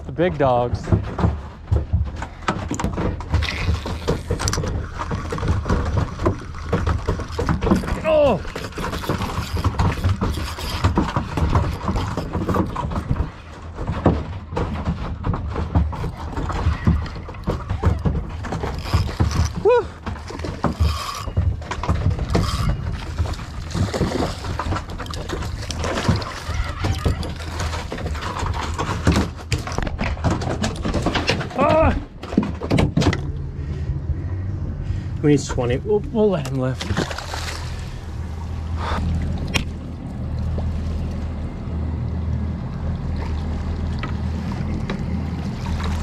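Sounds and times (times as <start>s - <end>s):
fishing reel being cranked: 7.2s - 12.7s, 18.6s - 19.6s, 20.6s - 21.4s, 22.3s - 22.7s
low uneven rumble: 33.1s - 46.0s.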